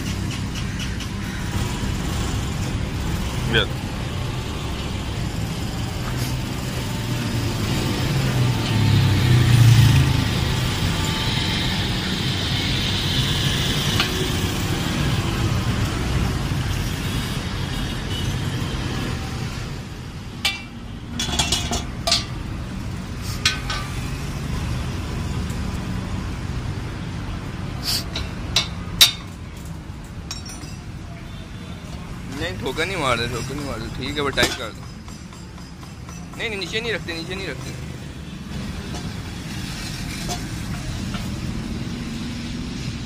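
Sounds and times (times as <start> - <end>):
vehicle engine rumble: 0.0 - 43.0
metallic clinks on steel frame: 30.1 - 30.9.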